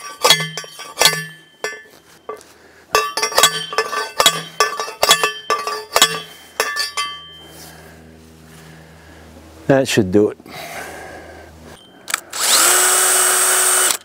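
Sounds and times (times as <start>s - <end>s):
post driver clanking on metal pole: 0.0s - 7.4s.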